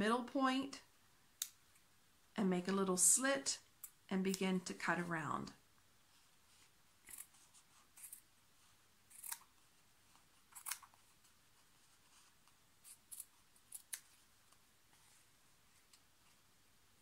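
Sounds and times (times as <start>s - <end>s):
scissors snipping fabric: 9.1s - 9.5s.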